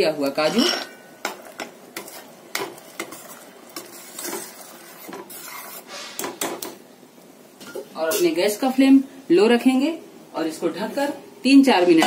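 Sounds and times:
spoon scraping thick gravy: 1.3s - 6.4s.

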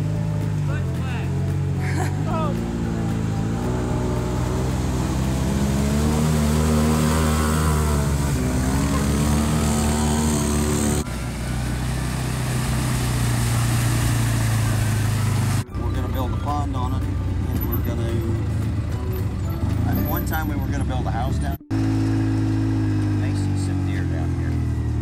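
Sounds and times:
off-road vehicle engines: 0.0s - 25.0s
water splashing: 0.3s - 15.7s.

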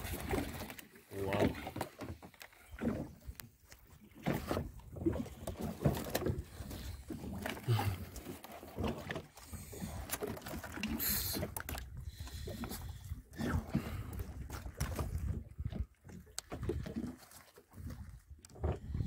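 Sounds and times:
water noise: 0.0s - 19.0s
knocks and rubbing on boat: 4.2s - 10.7s.

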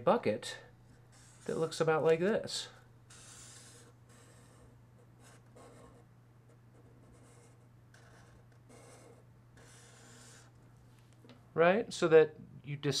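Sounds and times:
felt-tip marker strokes on paper: 1.1s - 1.6s.

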